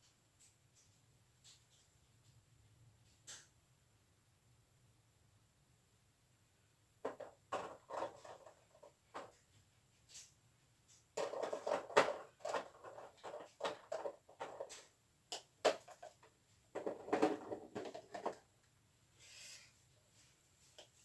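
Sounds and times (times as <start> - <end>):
rustling of craft supplies: 7.0 - 21.0.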